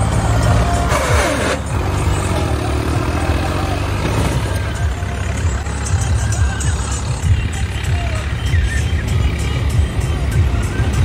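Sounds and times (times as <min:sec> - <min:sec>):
tractor diesel engine: 0:00.0 - 0:11.0.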